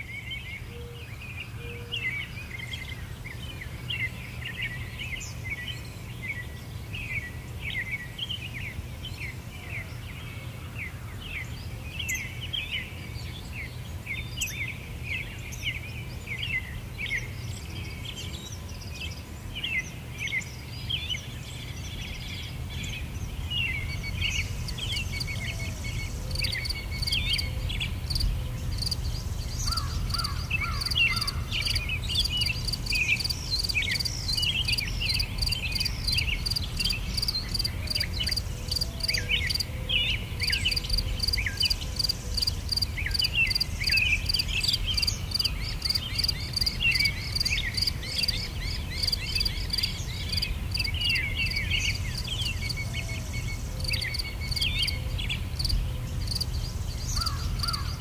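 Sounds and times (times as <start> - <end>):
small birds chirping: 0.0 - 58.0
insects pulsing: 24.1 - 39.6, 40.8 - 47.9, 55.6 - 56.4.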